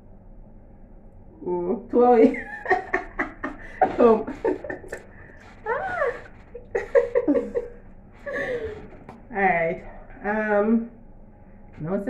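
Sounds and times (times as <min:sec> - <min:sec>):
women laughing: 0:02.2 - 0:09.0.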